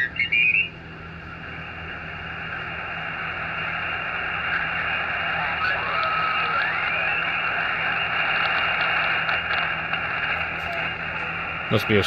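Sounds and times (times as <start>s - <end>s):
radio receiver hiss: 1.2s - 12.0s.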